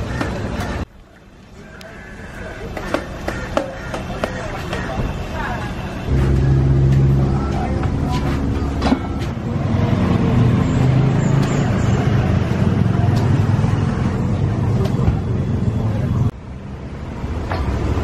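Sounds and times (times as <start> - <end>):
steady low rumble: 6.1 - 9.6.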